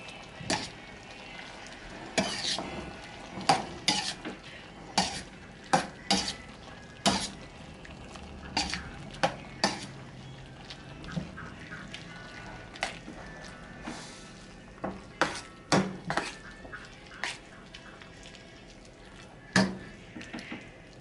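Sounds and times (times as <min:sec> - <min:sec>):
meat sizzling: 0:00.0 - 0:20.0
utensil scraping metal skillet: 0:02.1 - 0:07.4, 0:08.5 - 0:08.9, 0:09.6 - 0:10.0, 0:16.1 - 0:16.5.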